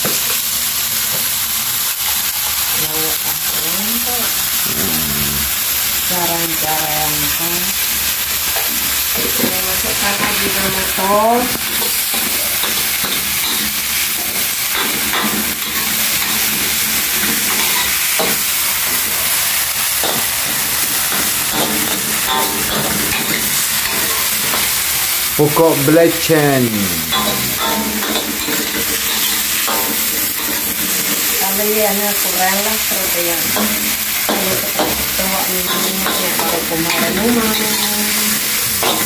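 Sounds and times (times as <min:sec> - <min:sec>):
greens sizzling in wok: 0:00.0 - 0:39.0
short rising voice-like sound: 0:04.7 - 0:05.5
metal spatula scraping wok: 0:27.1 - 0:31.4.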